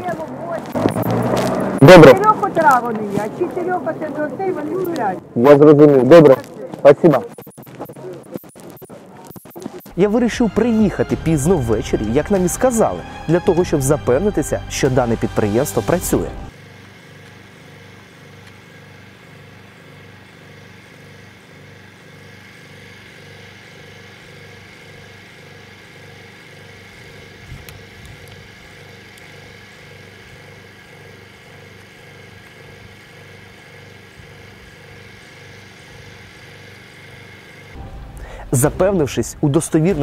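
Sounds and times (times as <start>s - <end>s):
machine throbbing steadily: 9.8s - 16.6s, 17.6s - 40.0s.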